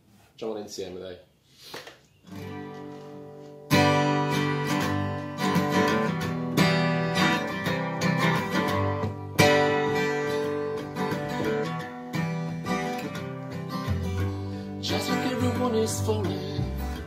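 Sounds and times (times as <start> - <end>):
acoustic guitar strumming: 2.3 - 17.0
plucked double bass: 16.0 - 17.0.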